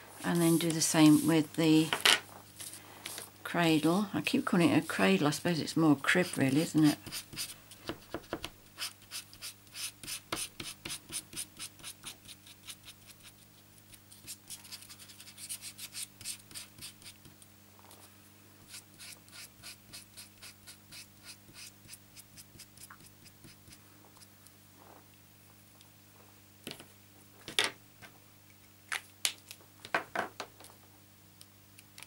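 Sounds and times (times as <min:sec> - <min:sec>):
glue pen scratching on card: 0:06.2 - 0:13.3, 0:14.2 - 0:17.2, 0:18.7 - 0:23.8.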